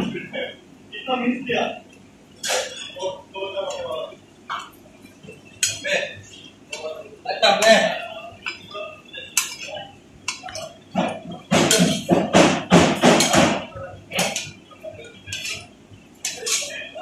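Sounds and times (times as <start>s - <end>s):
metal spatula scraping griddle: 15.3s - 16.7s.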